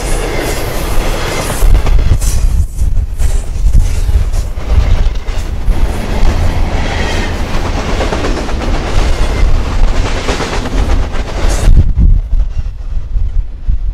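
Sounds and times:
freight train rumbling past: 0.0s - 13.9s.

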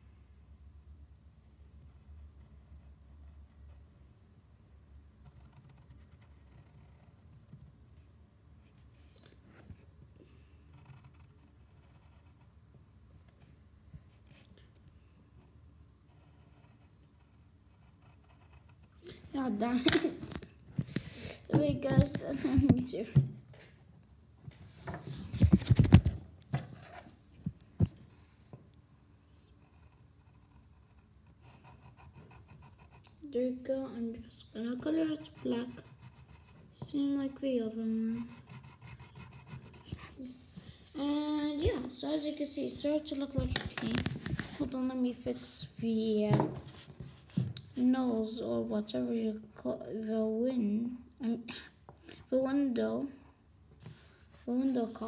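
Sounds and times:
pencil scratching on paper: 1.4s - 3.9s, 4.5s - 9.9s, 10.6s - 12.6s, 15.3s - 23.2s, 24.8s - 50.4s, 53.8s - 55.0s
knocks and rubbing on a desk: 19.8s - 23.8s, 24.5s - 28.6s, 43.4s - 44.7s, 45.8s - 47.6s.

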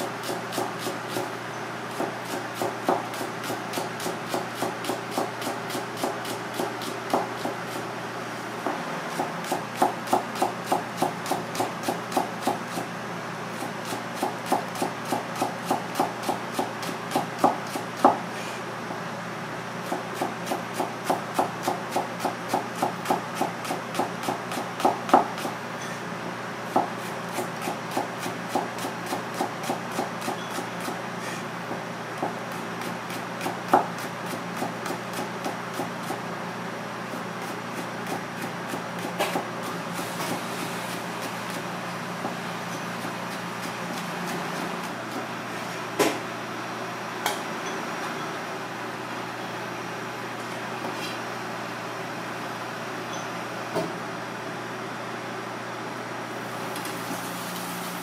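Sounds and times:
knife shredding cabbage on board: 37.1s - 41.7s.

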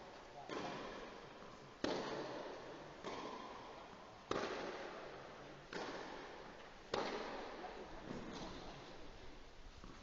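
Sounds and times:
tennis racket hitting ball: 0.4s - 7.4s.

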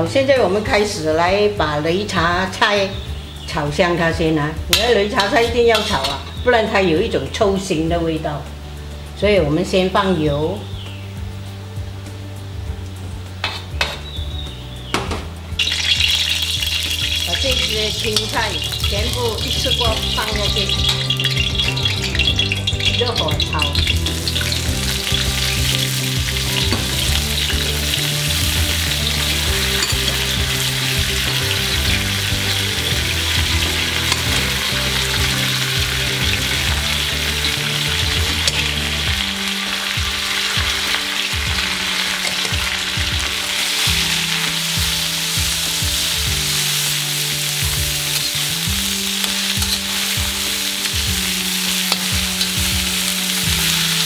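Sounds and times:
greens sizzling in hot oil: 0.0s - 54.0s
metal spatula scraping wok: 4.7s - 6.7s, 13.4s - 14.1s, 15.6s - 54.0s.

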